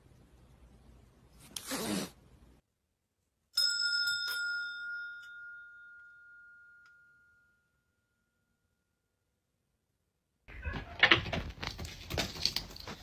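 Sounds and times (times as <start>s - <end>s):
small bell ringing: 3.6s - 9.1s.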